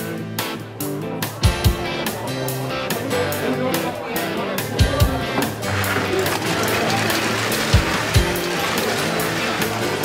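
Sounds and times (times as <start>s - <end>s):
background music with beat: 0.0s - 10.0s.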